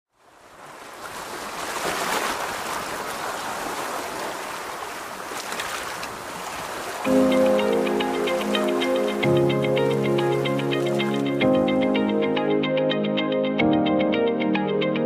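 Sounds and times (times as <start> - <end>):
waves washing on shore: 0.1 - 11.4.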